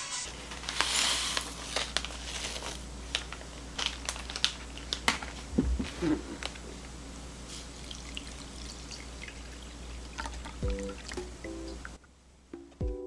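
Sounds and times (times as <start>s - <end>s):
paper packet crinkling: 0.2s - 6.6s.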